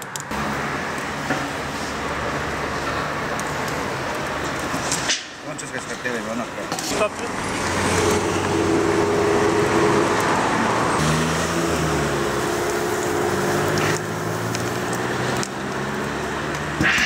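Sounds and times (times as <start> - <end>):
water hissing into steam: 11.0 - 17.0.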